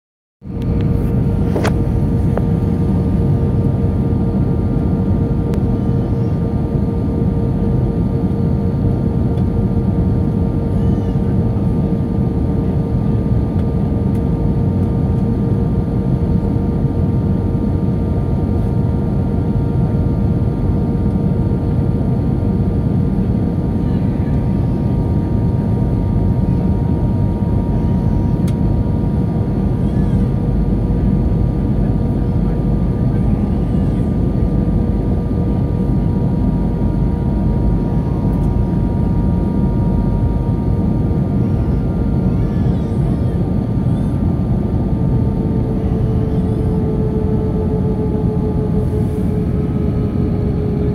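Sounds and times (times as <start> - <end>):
constant hum: 0.4 - 50.9
engine and airflow rumble: 0.4 - 50.9
faint steady whines: 0.4 - 50.9.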